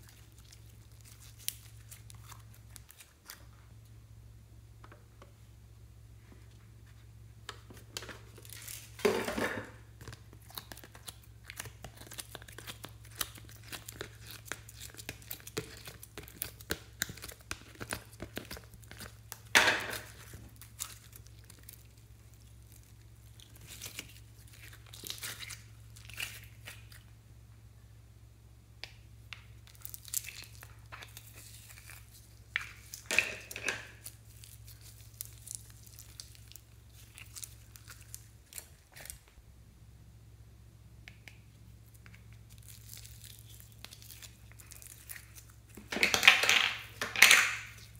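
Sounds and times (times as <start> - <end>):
sticky slime crackling and tearing: 0.0 - 3.5, 9.8 - 27.0, 29.5 - 39.3, 41.8 - 47.9
slime squishes: 0.0 - 3.8, 9.7 - 27.2, 28.8 - 39.4, 41.0 - 47.9.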